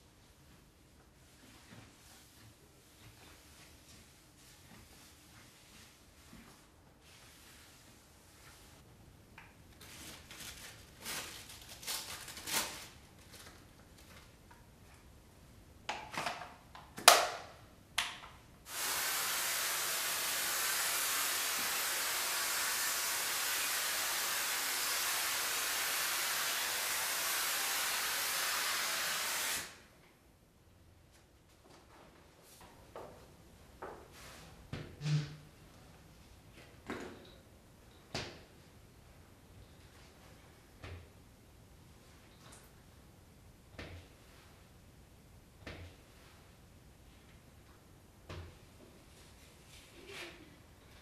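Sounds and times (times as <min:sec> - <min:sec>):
cloth wiping: 0:01.0 - 0:08.8
steam cleaner hissing: 0:18.7 - 0:29.8.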